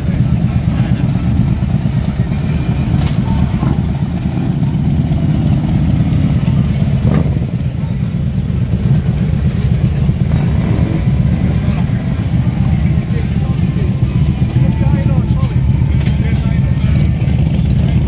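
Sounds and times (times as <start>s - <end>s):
motorcycle engines idling: 0.0s - 18.0s.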